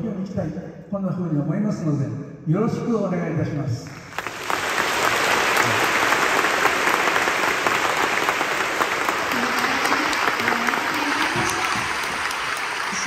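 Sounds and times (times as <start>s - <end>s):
audience applauding: 4.0s - 13.0s.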